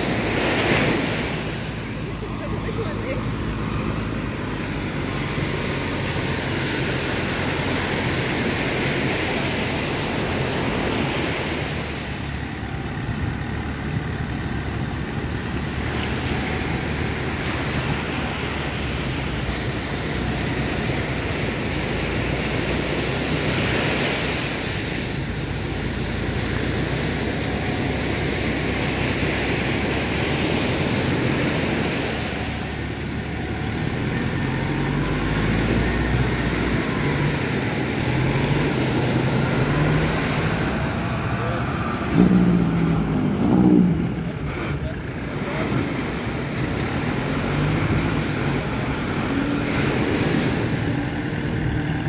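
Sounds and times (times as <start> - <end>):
vehicle engine running: 0.0 - 52.0
surf breaking: 35.5 - 52.0.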